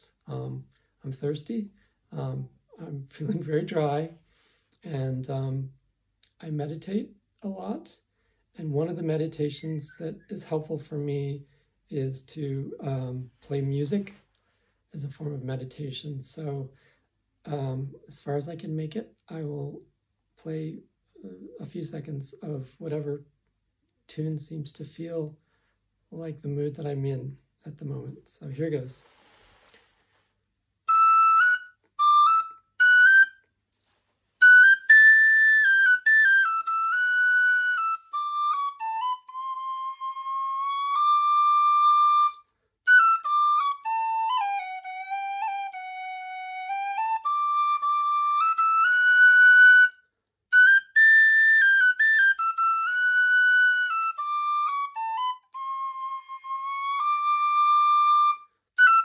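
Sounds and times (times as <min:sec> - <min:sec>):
tin whistle melody: 0:30.9 - 0:33.5, 0:34.4 - 0:59.0.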